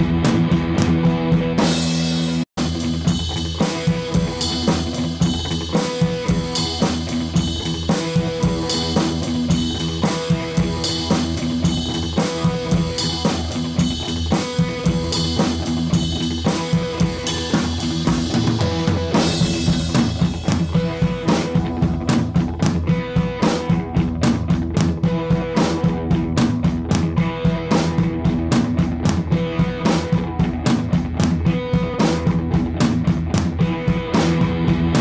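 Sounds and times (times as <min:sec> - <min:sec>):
drums and guitar music: 0:00.0 - 0:35.0.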